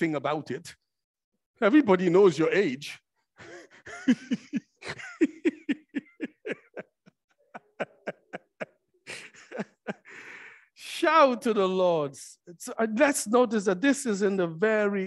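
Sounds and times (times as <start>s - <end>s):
person laughing: 3.4s - 10.2s.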